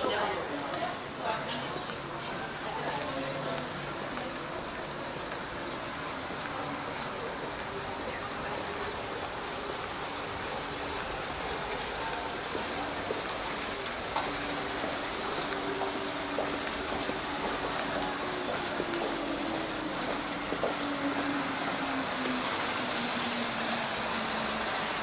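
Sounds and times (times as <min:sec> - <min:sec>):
faint voices of passers-by: 0:00.0 - 0:25.0
running water rushing: 0:00.0 - 0:25.0.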